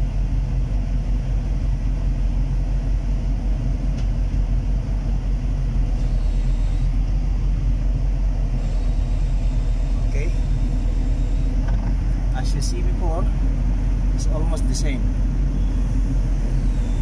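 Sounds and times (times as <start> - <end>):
excavator diesel engine running: 0.0 - 17.0
hydraulic pump under load: 5.8 - 7.1, 8.4 - 12.3.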